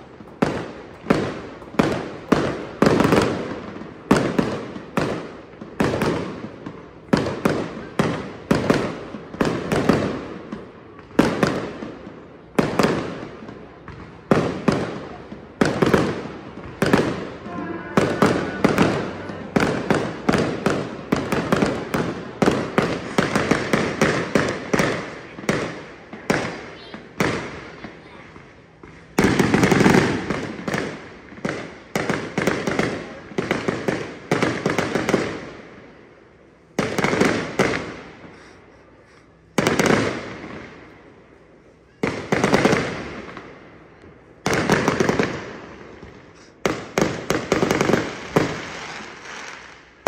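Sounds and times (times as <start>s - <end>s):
fireworks booming: 0.0s - 35.6s.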